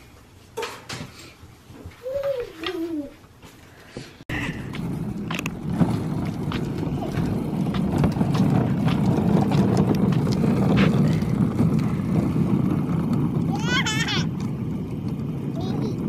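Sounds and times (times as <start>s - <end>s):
plastic wagon wheels rolling on concrete: 4.3s - 16.0s.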